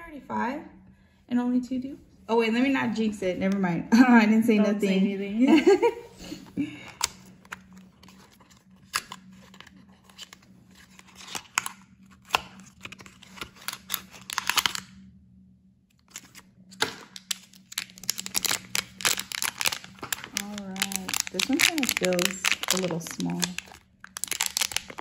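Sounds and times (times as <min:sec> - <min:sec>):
foil pouch crinkling: 0:07.0 - 0:14.9, 0:16.0 - 0:25.0.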